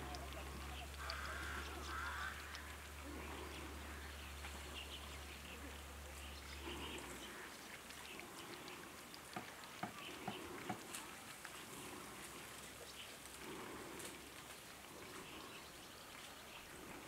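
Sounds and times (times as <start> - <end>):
light ticks: 0.0 - 17.0
soft animal calls: 0.0 - 17.0.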